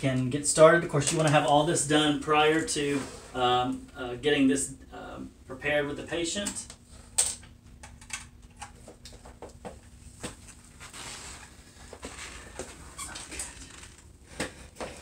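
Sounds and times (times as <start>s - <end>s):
cable clicks and rustling: 1.0s - 1.7s, 6.4s - 11.0s.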